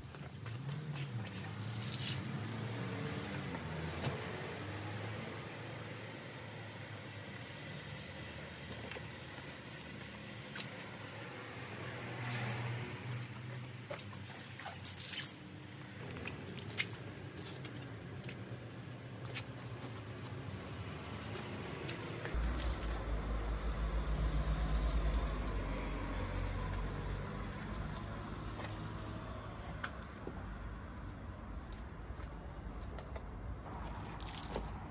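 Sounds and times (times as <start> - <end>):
wash mitt squishing on wet car: 0.6 - 3.9, 13.8 - 17.2, 33.7 - 34.9
strong low rumble: 22.4 - 27.8.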